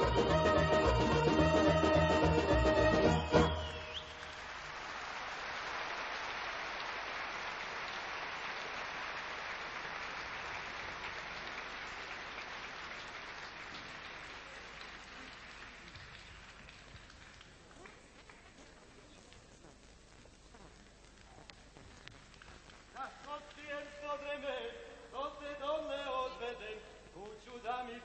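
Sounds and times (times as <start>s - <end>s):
audience applause: 0.0s - 19.2s.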